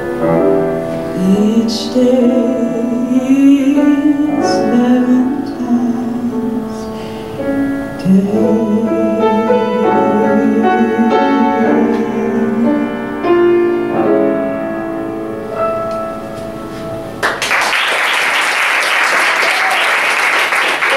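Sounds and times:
piano chords: 0:00.0 - 0:17.8
audience applause: 0:17.2 - 0:20.9.

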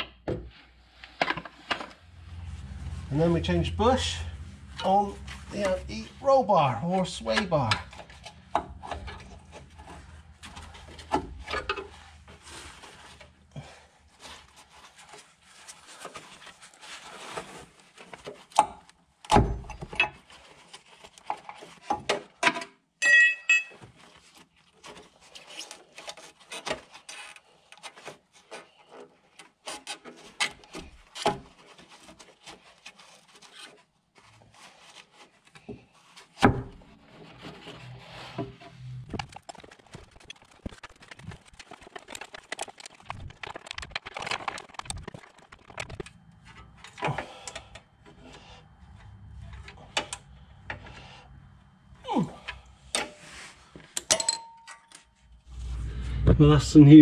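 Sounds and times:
short metallic ring: 0:23.0 - 0:23.8, 0:54.1 - 0:55.0.

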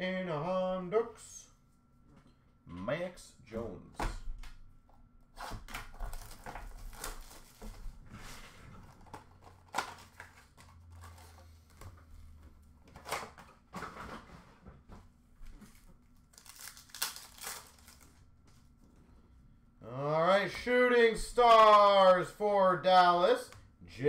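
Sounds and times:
cardboard rustling and scraping: 0:05.4 - 0:12.3.

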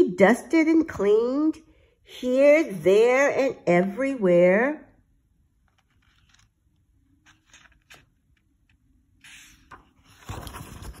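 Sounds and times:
book pages being turned: 0:05.5 - 0:11.0.

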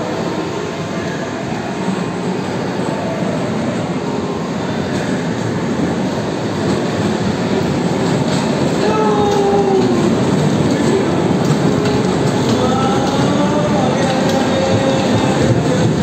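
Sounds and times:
bumper cars rumbling whir: 0:00.0 - 0:16.0.

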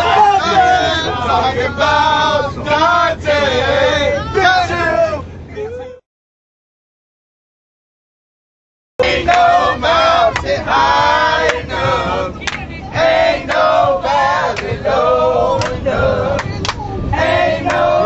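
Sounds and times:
boys singing off-key: 0:00.0 - 0:05.1, 0:09.0 - 0:18.0.

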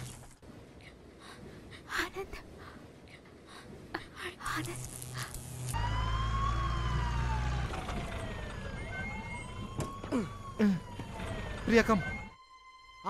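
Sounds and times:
low engine drone: 0:04.6 - 0:12.4
ambulance siren wailing: 0:05.7 - 0:13.0.

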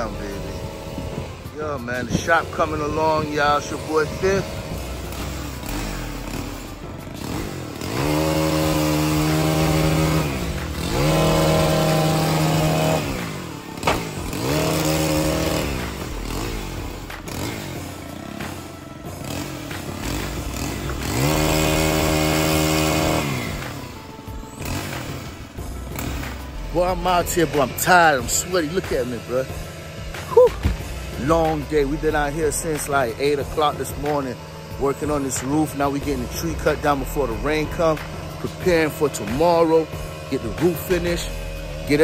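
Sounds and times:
chainsaw cutting: 0:00.0 - 0:42.0
sharp snap: 0:13.8 - 0:14.2.

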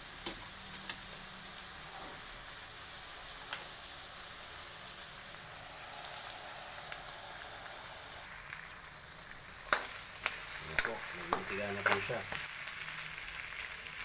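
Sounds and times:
meat sizzling in hot oil: 0:00.0 - 0:14.0.

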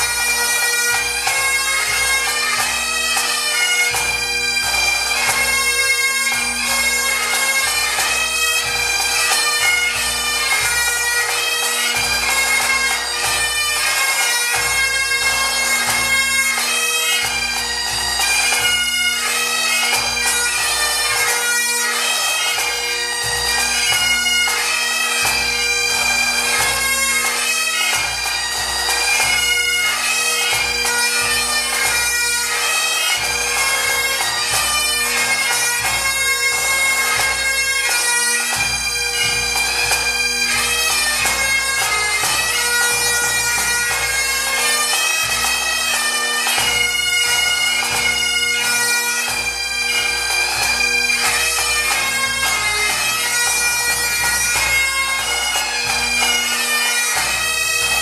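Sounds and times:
bagpipes playing a melody: 0:00.0 - 0:58.0.

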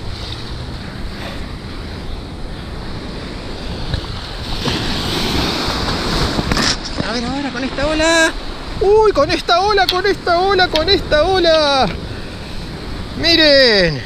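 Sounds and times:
sea surf washing against rocks: 0:00.0 - 0:14.0
wind on microphone: 0:00.0 - 0:14.0.

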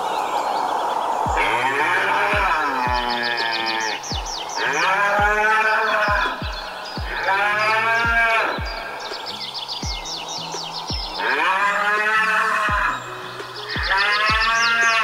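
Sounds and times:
background music with kick drum: 0:01.2 - 0:15.0
cattle mooing: 0:11.2 - 0:13.0.

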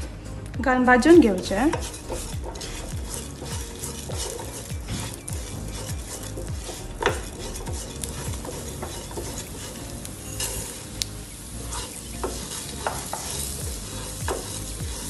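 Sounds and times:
light sizzle: 0:00.0 - 0:15.0
spatula scraping a pan: 0:01.2 - 0:15.0.

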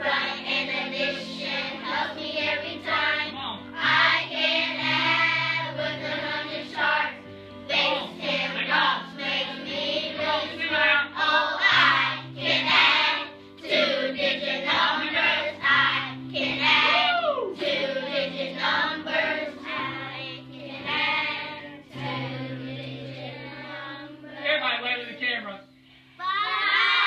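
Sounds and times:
children singing in unison: 0:00.0 - 0:24.4.

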